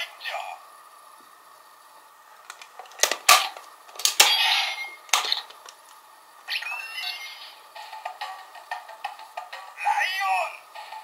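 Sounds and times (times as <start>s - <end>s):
electronic toy sound effects: 6.5s - 7.6s.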